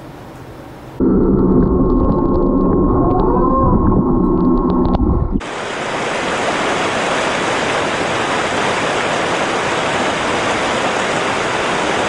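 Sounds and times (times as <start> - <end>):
muffled underwater rumble: 1.0 - 5.4
water pouring and splashing: 1.3 - 12.0.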